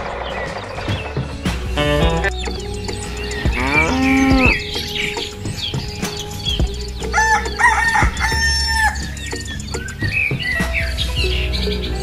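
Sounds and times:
background music: 0:00.0 - 0:12.0
rooster crowing: 0:07.2 - 0:09.0.

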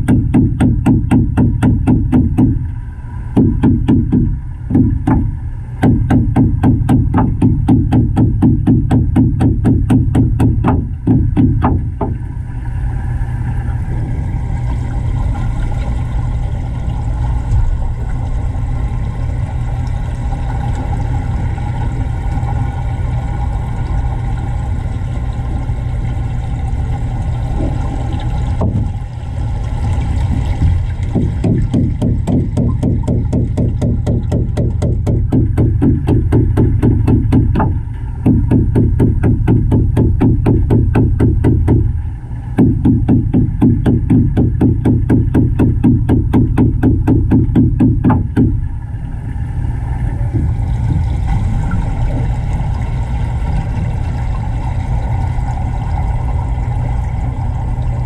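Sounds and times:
low rumbling hum: 0:00.0 - 0:58.0
fast beat background music: 0:05.8 - 0:12.0, 0:31.2 - 0:41.9, 0:42.6 - 0:48.6.

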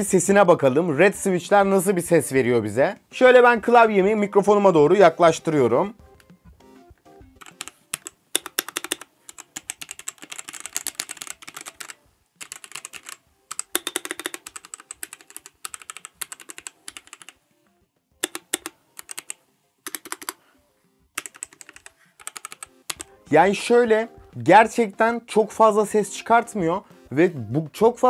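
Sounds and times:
keyboard keys clacking: 0:05.5 - 0:17.4, 0:18.2 - 0:20.4, 0:21.1 - 0:25.0.

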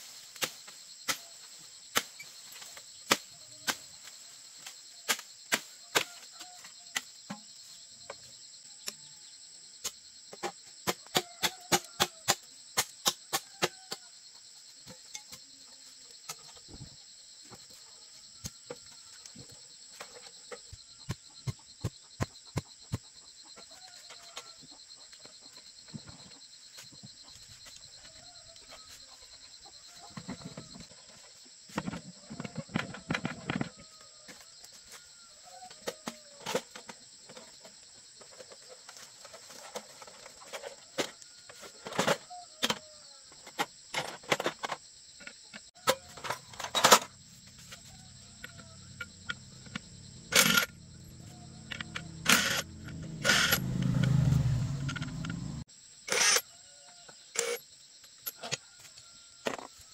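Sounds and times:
impact wrench running: 0:50.3 - 0:50.8, 0:51.7 - 0:56.4.

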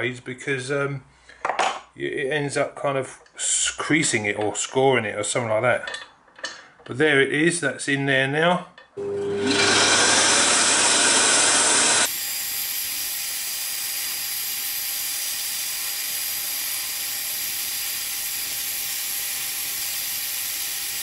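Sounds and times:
scroll saw running: 0:09.0 - 0:21.0.

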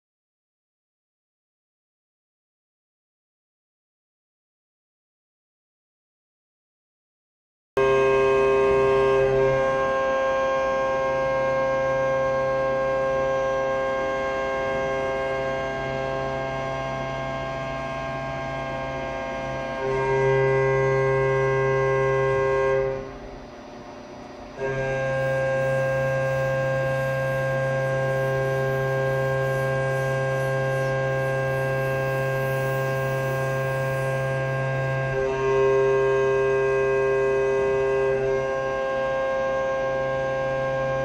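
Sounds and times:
milling machine whine: 0:08.8 - 0:41.0.

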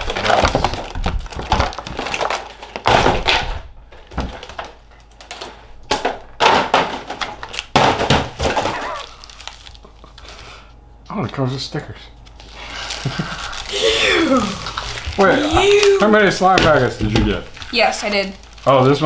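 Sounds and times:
plastic packaging crinkling: 0:00.0 - 0:03.0, 0:08.4 - 0:10.4, 0:12.2 - 0:19.0.

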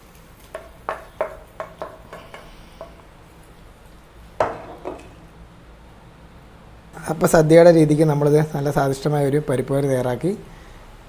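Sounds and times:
wooden spoon knocking on pan: 0:00.5 - 0:03.0, 0:04.4 - 0:05.2.

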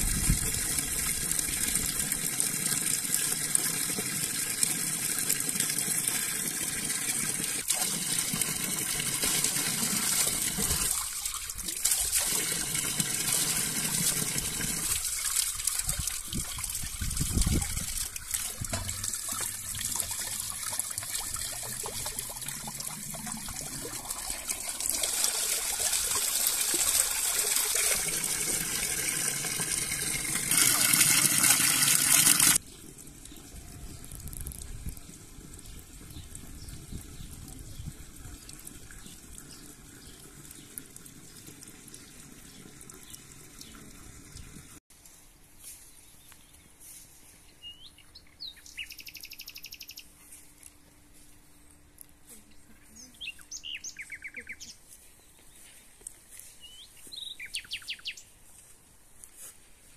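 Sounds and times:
water pouring into jug: 0:00.0 - 0:44.8.

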